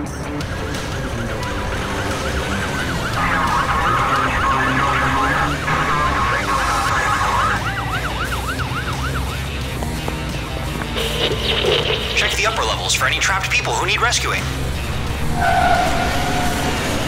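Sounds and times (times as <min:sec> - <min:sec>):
yelping siren: 0:00.6 - 0:09.7
second overlapping siren: 0:00.8 - 0:09.7.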